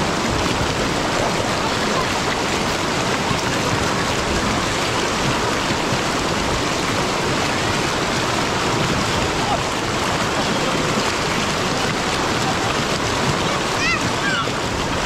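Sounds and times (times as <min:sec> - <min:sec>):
river rapids rushing over rocks: 0:00.0 - 0:15.0.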